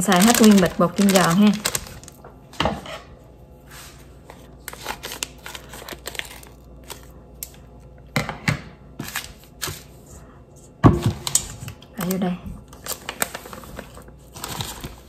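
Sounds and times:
scissors snipping packet: 0.0 - 2.1
plastic packet crinkling: 0.0 - 2.2, 4.6 - 7.6, 12.0 - 15.0.

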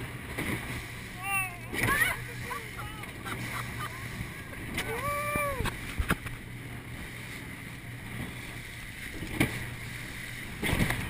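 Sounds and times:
hull slamming into waves: 0.0 - 7.2, 8.0 - 11.0
boat engine drone: 0.0 - 11.0
rushing wind and water: 0.0 - 11.0
person crying out: 4.8 - 5.7.

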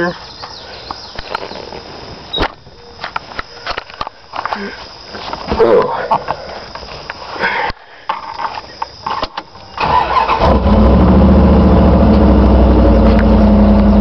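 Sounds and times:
clicks and rustling: 2.4 - 7.2
truck engine starting and idling: 9.8 - 14.0.

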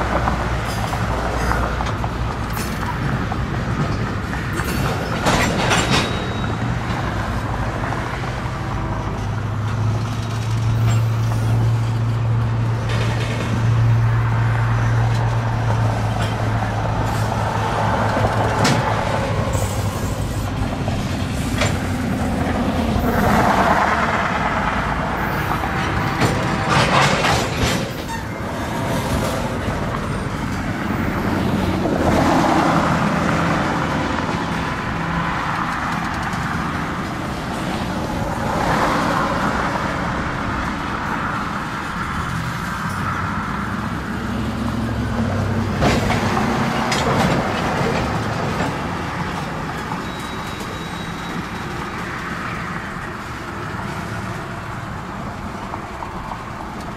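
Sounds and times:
train wheels rumbling on rail: 0.0 - 56.9
wheels clanking over rail joints: 0.0 - 56.9.

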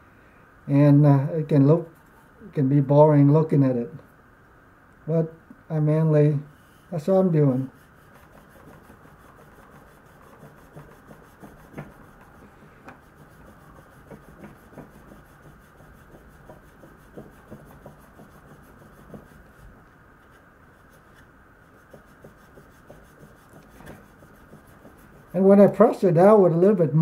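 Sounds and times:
knife edge rubbing on wood: 6.5 - 19.7, 21.7 - 26.0.

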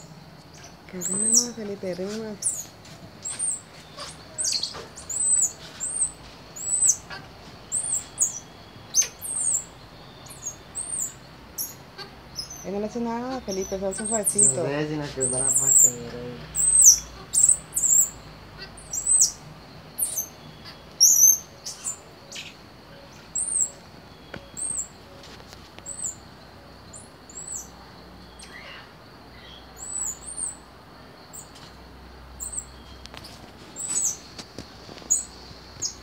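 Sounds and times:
monkey chirps: 0.0 - 23.8, 26.9 - 27.8, 28.4 - 30.6
monkeys peeping: 0.0 - 31.8, 32.4 - 36.0.

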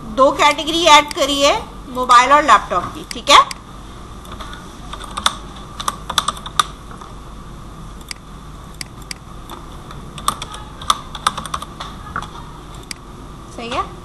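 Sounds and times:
keyboard keystrokes: 4.3 - 6.7, 10.2 - 13.0.

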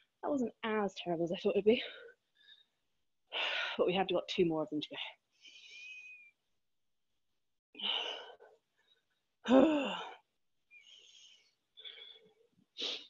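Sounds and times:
woman sighing: 9.4 - 10.2.

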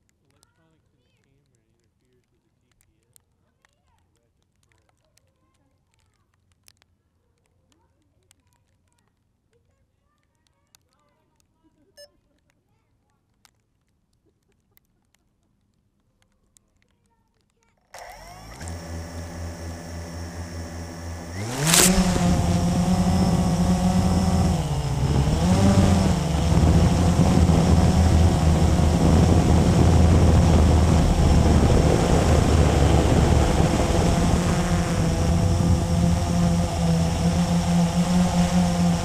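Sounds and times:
quadcopter motors whirring: 18.0 - 39.0.

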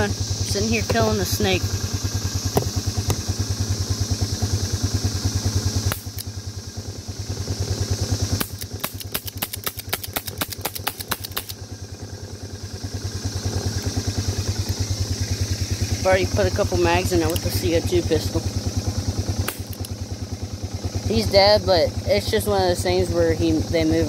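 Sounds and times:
lawn mower engine idling: 0.0 - 24.0
air pistol shots: 8.3 - 11.6.

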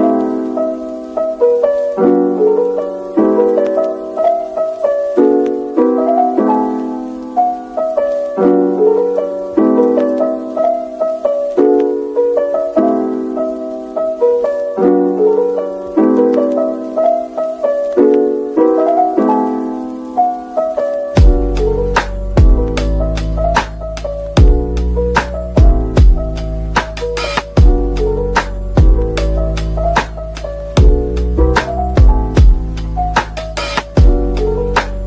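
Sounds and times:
soft piano chords: 0.0 - 35.0
drum hit: 25.6 - 26.2, 32.0 - 32.6.

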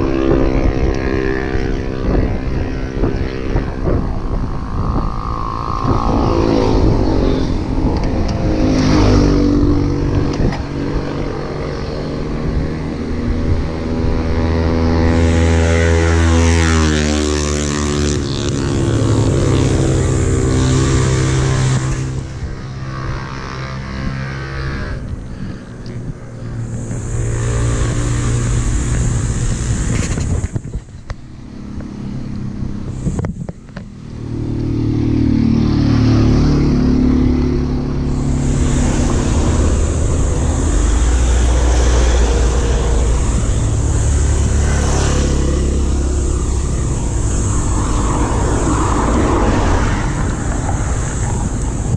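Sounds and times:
motor vehicle engine: 0.0 - 51.9
wind buffeting microphone: 0.0 - 51.9.

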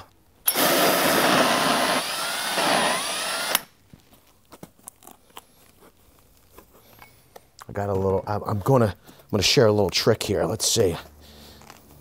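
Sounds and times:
drill with hole saw whirring: 0.4 - 3.8.

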